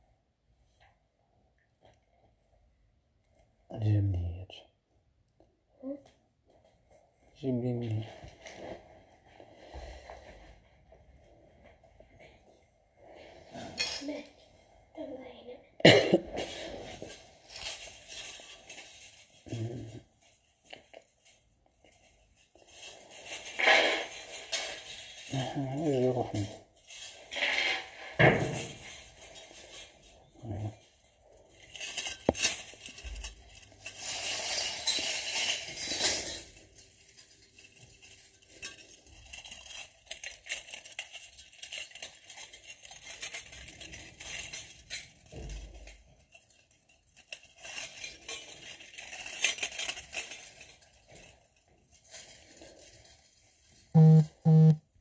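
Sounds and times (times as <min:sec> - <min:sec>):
jewellery jingling and clinking: 0:16.8 - 0:53.9.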